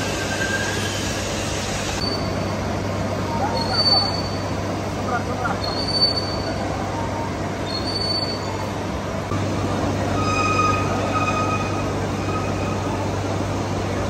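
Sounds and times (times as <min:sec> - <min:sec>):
high squeal of cutting tool: 0:00.0 - 0:01.2.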